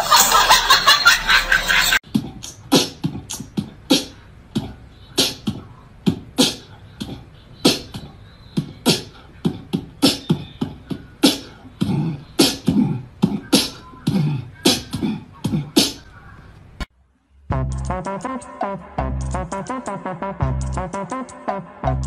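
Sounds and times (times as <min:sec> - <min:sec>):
beatboxing thumps and clicks: 0:02.0 - 0:16.1, 0:17.6 - 0:22.0.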